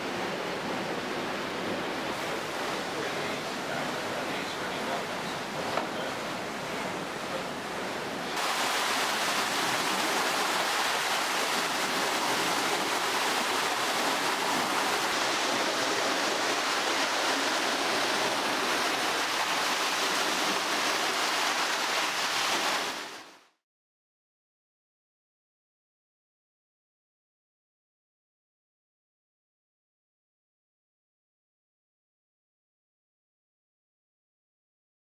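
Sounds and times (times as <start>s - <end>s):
flowing water rushing: 0.0s - 23.4s.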